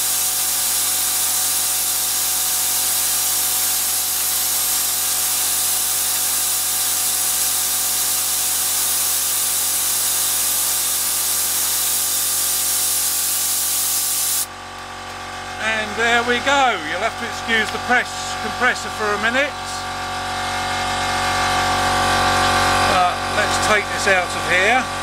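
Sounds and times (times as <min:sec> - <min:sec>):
compressed air hissing from nozzle: 0:00.0 - 0:14.5.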